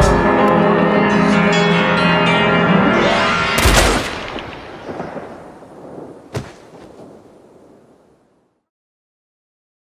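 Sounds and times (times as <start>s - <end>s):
loud gunshot with echo: 3.6s - 5.5s.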